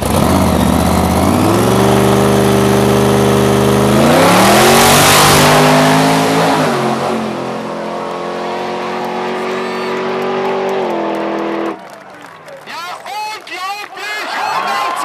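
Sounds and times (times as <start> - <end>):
hot rod engine revving: 0.0 - 11.8.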